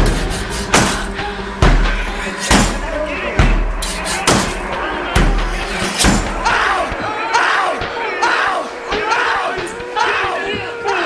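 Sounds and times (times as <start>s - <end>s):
deep drum hits: 0.0s - 7.0s
heavy rock music: 0.0s - 10.4s
voice: 2.8s - 11.0s.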